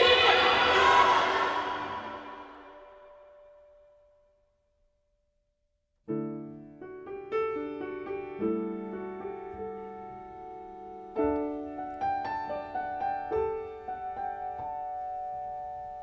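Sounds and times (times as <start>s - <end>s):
slow piano music: 6.1s - 16.0s.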